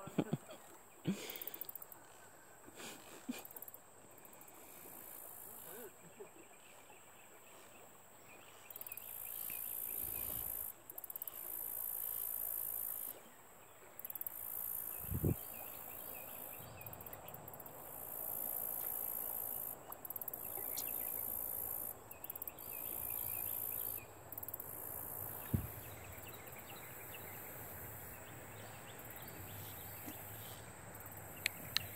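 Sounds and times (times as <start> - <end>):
faint outdoor hiss: 0.0 - 31.9
low thumps on microphone: 25.4 - 25.9.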